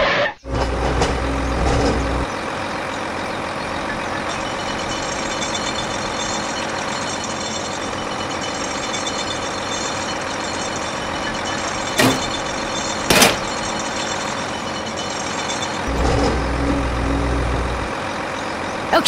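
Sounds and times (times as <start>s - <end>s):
deeper hum: 0.0s - 8.9s, 15.8s - 19.0s
small tractor motor running: 0.4s - 19.0s.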